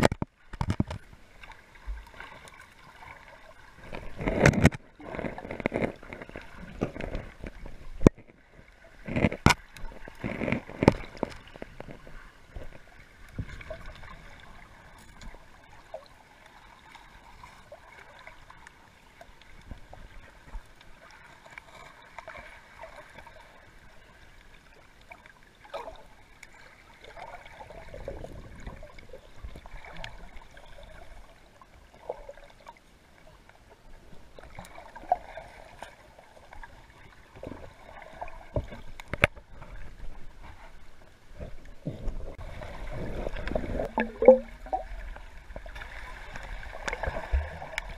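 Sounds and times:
small clicks and knocks: 0:00.0 - 0:01.2, 0:38.6 - 0:39.4
underwater gurgling and bubbling: 0:00.0 - 0:16.6, 0:27.0 - 0:32.7, 0:41.4 - 0:47.9.

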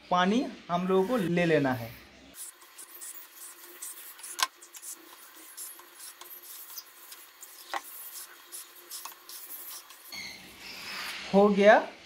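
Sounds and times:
syringe clicking on steel bowl: 0:02.4 - 0:10.4
syringe plunger rubbing: 0:02.4 - 0:11.2.

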